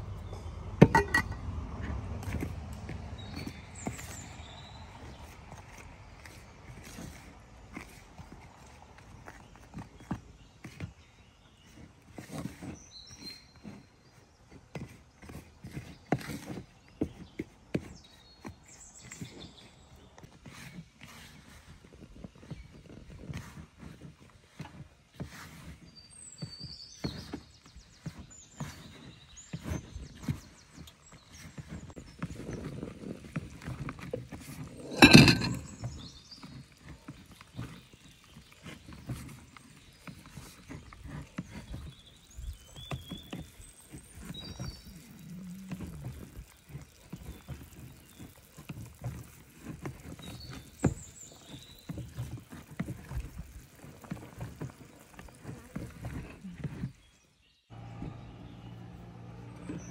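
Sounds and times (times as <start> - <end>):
loud clatter: 34.7 - 35.8.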